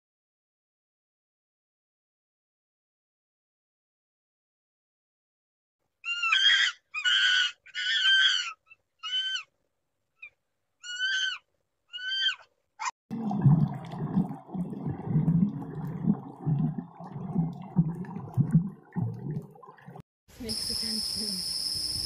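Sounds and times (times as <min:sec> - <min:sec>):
high-pitched animal calls: 0:06.0 - 0:09.5, 0:10.2 - 0:12.9.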